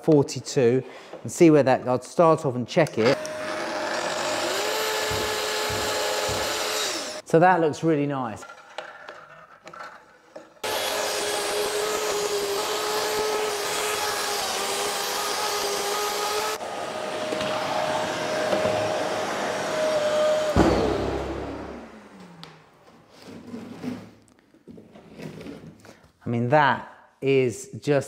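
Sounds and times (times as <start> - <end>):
circular saw cutting wood: 3.0 - 7.2, 10.6 - 22.6
saw motor winding down whine: 3.1 - 7.2, 10.6 - 22.6
dust extractor running: 3.2 - 7.2, 10.6 - 22.6.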